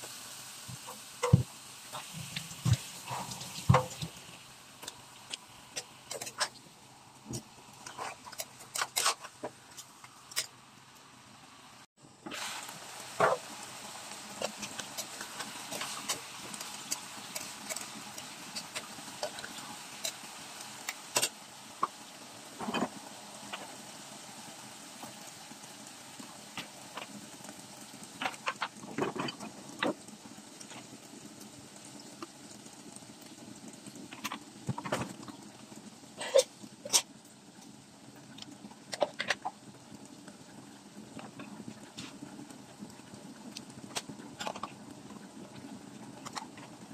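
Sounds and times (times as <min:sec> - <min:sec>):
chicken crackling and popping in pot: 0:00.0 - 0:11.1, 0:12.2 - 0:46.9
metal spatula scraping pot: 0:07.8 - 0:09.4.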